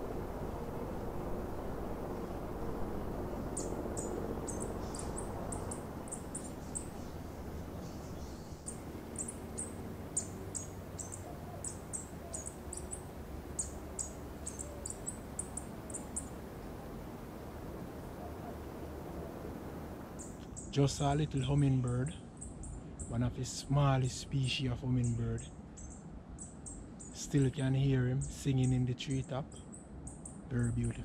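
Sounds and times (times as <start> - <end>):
low rushing noise: 0.0 - 21.5
hummingbird high squeaky song: 3.4 - 16.4.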